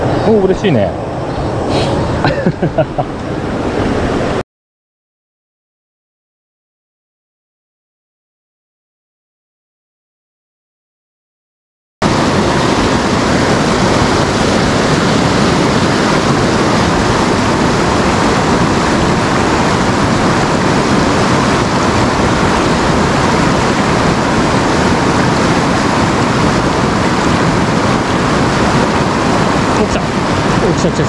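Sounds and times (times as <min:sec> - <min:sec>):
fast river rushing: 0:00.0 - 0:04.4, 0:12.0 - 0:31.0.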